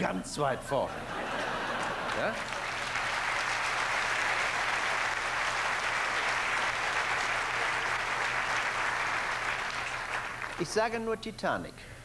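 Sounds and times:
audience applauding: 1.3s - 10.8s.

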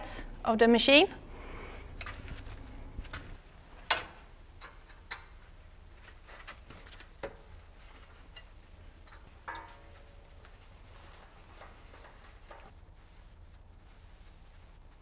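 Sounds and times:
wrench clinking on steel bolts: 8.3s - 10.0s.

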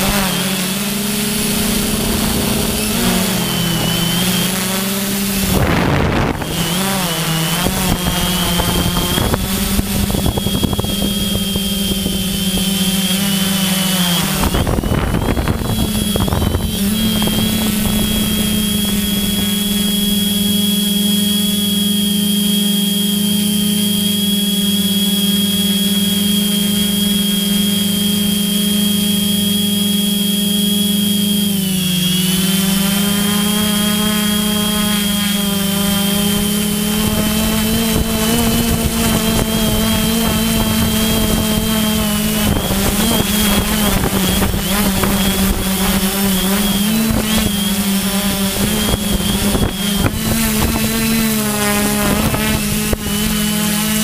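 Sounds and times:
wind buffeting microphone: 0.0s - 20.8s, 33.0s - 54.0s
drone motors humming and whining: 0.0s - 54.0s.

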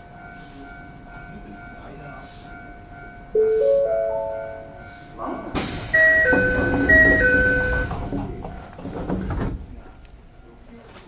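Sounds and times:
rising four-note chime: 3.4s - 4.8s
train door air rush: 5.6s - 9.6s
two-note falling door chime: 6.0s - 7.9s.

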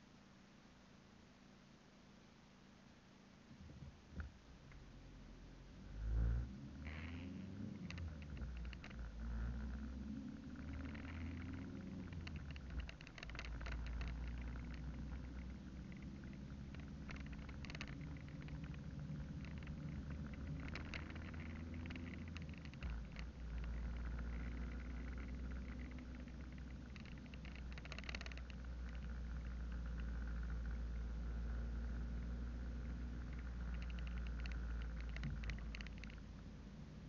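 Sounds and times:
car engine and road rumble: 3.6s - 37.0s
light ticks and rattles: 3.6s - 37.0s.

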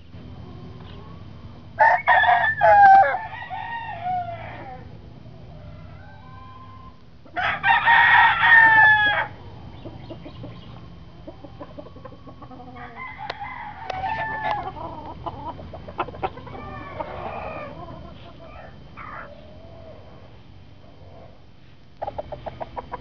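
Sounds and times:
rooster crowing: 1.8s - 4.9s, 5.6s - 9.4s, 12.5s - 20.0s.

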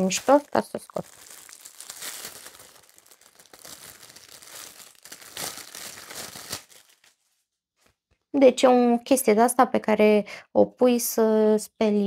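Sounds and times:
packaging crinkling and tearing: 0.0s - 7.2s.

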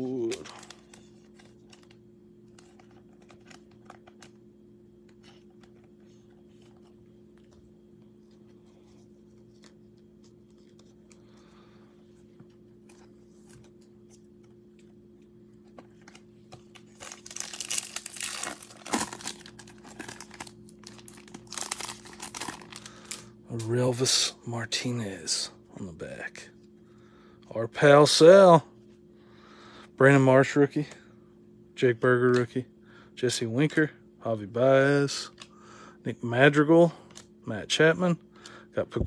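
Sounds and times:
steady low hum: 0.0s - 39.0s
foil pack crinkling and tearing: 16.7s - 23.3s.

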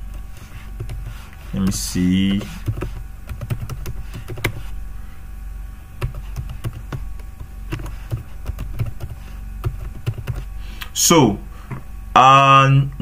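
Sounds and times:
keyboard typing: 0.0s - 4.7s, 6.0s - 10.5s
low hum: 0.0s - 13.0s.

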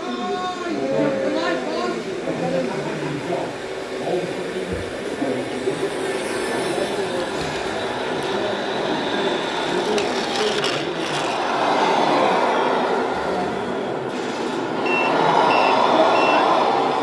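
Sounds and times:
reversing beeper beeps: 14.9s - 16.5s.

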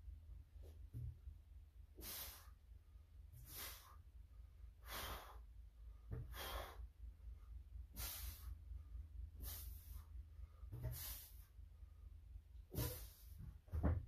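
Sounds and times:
hissing hard breaths: 2.0s - 2.6s, 3.4s - 4.0s, 4.8s - 5.5s, 6.2s - 7.0s, 7.8s - 8.7s, 9.3s - 10.2s, 10.8s - 11.6s.

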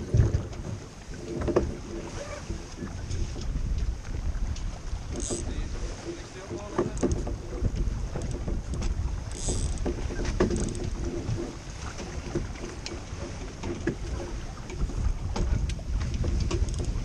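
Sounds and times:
water rushing along hull: 0.0s - 17.0s
wind buffeting microphone: 0.0s - 17.0s
rigging knocks and clicks: 0.1s - 1.8s, 4.5s - 5.5s, 6.5s - 17.0s.

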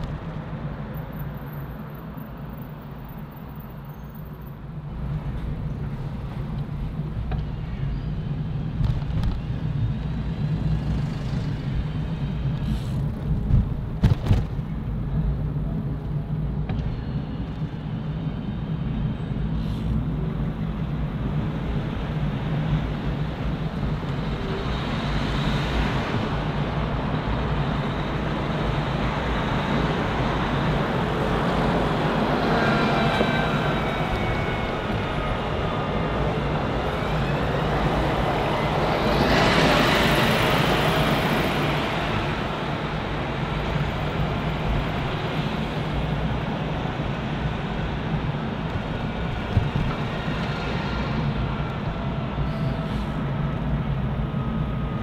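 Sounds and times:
vehicles passing: 0.0s - 55.0s.

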